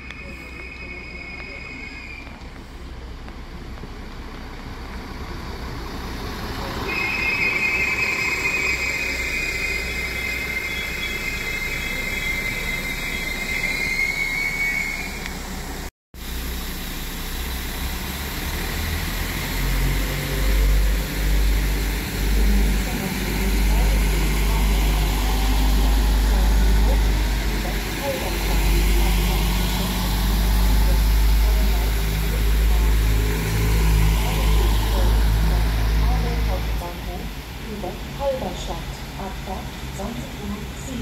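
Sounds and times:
train wheels squealing: 0:00.0 - 0:02.8, 0:06.6 - 0:15.9, 0:18.9 - 0:36.6
train rumble: 0:00.0 - 0:41.0.

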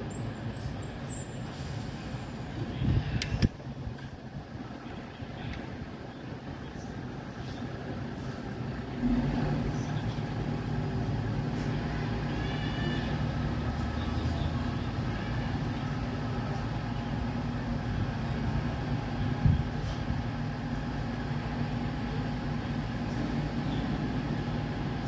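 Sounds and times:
diesel truck engine revving: 0:08.0 - 0:25.0.

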